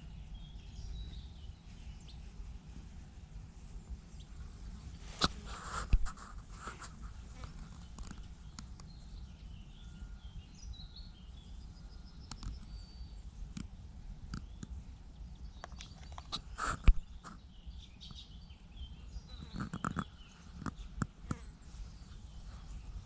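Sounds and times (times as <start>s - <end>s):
faint bird chirps: 6.6s - 23.0s.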